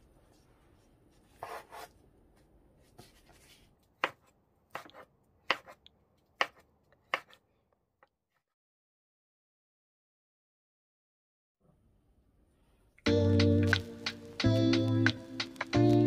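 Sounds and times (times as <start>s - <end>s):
soft rustle: 0.0s - 1.6s.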